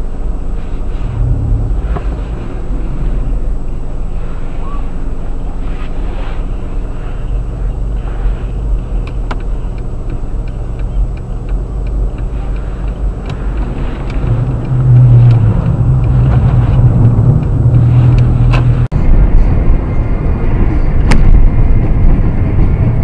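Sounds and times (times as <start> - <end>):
car engine and road noise: 0.0 - 23.0
light regular ticking: 6.8 - 18.9.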